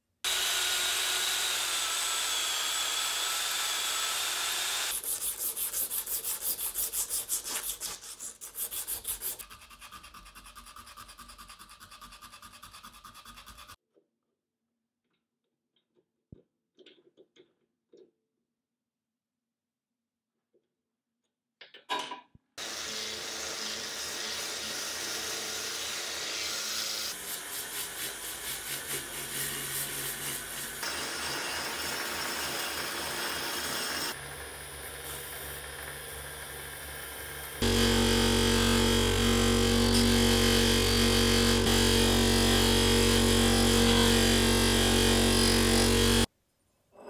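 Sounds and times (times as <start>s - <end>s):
drill press motor hum: 0.3s - 4.9s, 37.6s - 46.3s.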